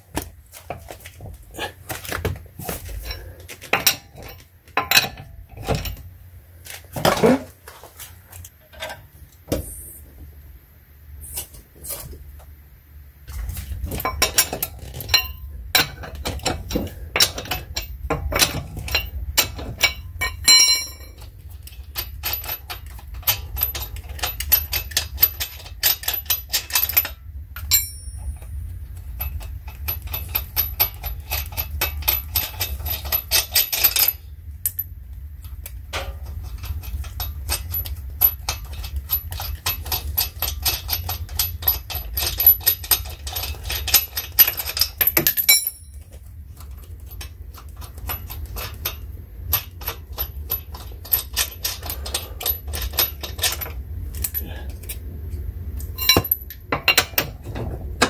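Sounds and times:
lug nuts clicking and clinking: 13.9s - 55.0s, 55.8s - 58.0s.

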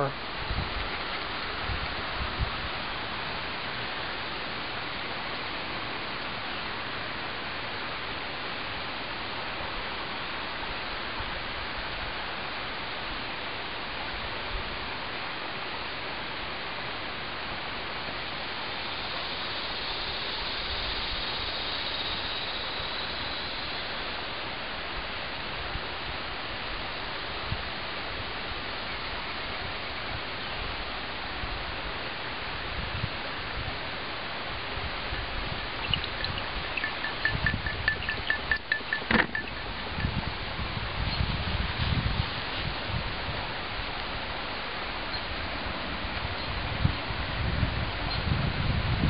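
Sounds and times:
steady background hiss: 0.0s - 49.0s.

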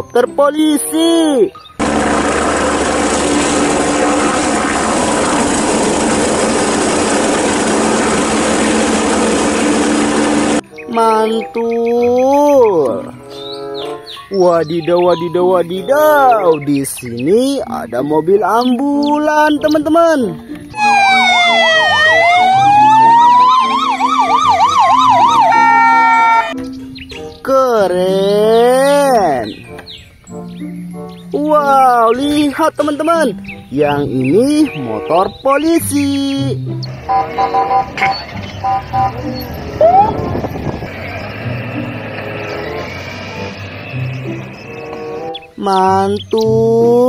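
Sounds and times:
steady low hum: 1.8s - 10.6s
helicopter hovering: 1.8s - 10.7s, 20.7s - 26.6s, 36.5s - 45.3s
ambulance siren rapid sweeping: 20.7s - 26.6s, 37.0s - 44.2s
ambulance siren wailing: 20.7s - 26.6s, 37.0s - 45.4s.

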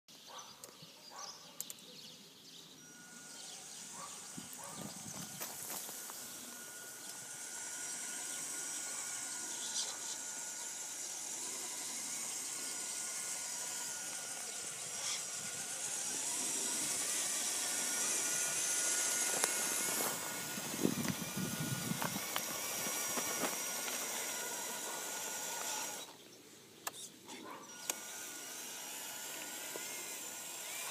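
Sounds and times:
toy truck motor whine: 2.8s - 30.9s
tyres crackling over gravel: 4.6s - 7.2s, 13.2s - 26.0s.

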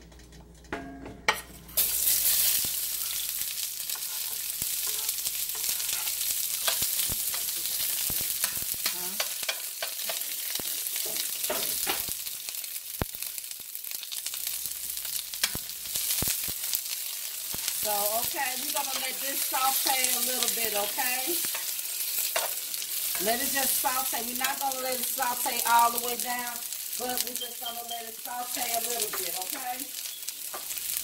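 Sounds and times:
metal spatula scraping and tapping: 0.0s - 1.6s, 3.9s - 7.8s, 8.4s - 10.3s, 22.3s - 23.3s
onions sizzling in hot oil: 1.7s - 31.0s.

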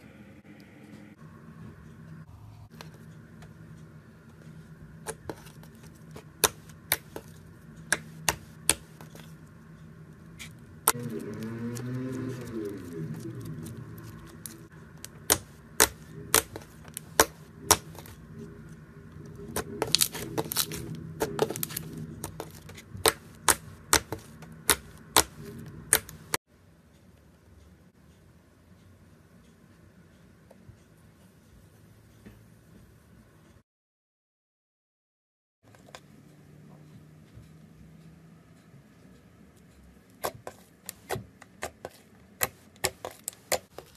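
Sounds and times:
slime squishing: 4.5s - 9.5s, 10.3s - 26.4s, 40.2s - 43.9s.

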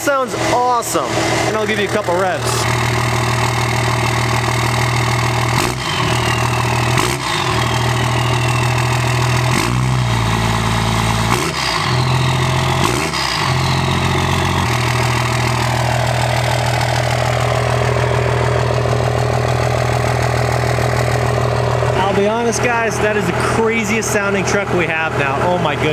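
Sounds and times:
diesel engine idling and revving: 0.0s - 25.9s
turbo whistle: 5.6s - 9.3s, 11.3s - 14.4s.

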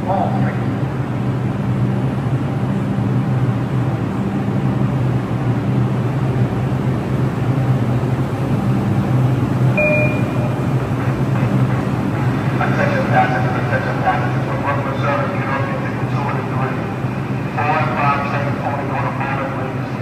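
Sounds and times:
subway train rumble: 0.0s - 20.0s
short high beep: 9.8s - 10.6s.

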